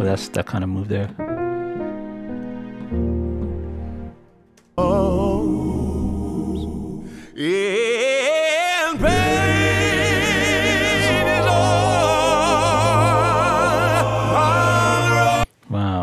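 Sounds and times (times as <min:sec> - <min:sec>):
layered choir singing: 0:04.8 - 0:07.5, 0:08.8 - 0:15.5
sustained accompaniment: 0:09.0 - 0:15.5.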